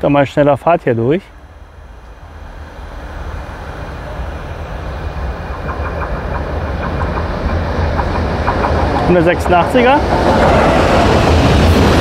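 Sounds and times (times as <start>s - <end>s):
freight train rumble: 0.0s - 12.0s
train wheels clicking over rails: 2.9s - 12.0s.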